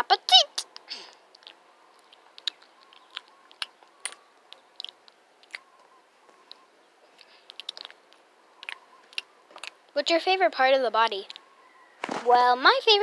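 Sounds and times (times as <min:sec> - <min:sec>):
mouth chewing and smacking noises: 0:00.6 - 0:10.0, 0:11.2 - 0:11.5.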